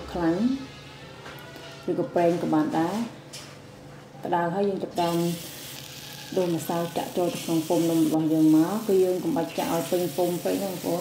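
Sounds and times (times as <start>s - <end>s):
woman speaking: 0.0s - 0.7s, 1.9s - 3.2s, 4.2s - 5.5s, 6.3s - 11.0s
batter sizzling in a hot pan: 5.0s - 11.0s.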